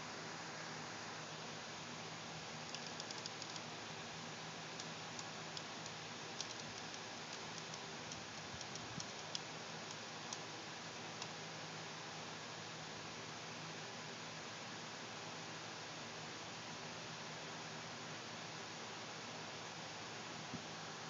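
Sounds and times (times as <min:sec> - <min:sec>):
steady hiss: 0:00.0 - 0:12.5
faint ticks: 0:02.7 - 0:03.7, 0:04.8 - 0:10.4.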